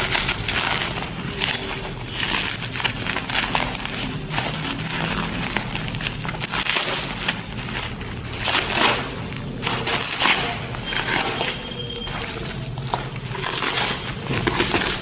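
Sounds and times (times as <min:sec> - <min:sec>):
plastic packaging crinkling: 0:00.0 - 0:15.0.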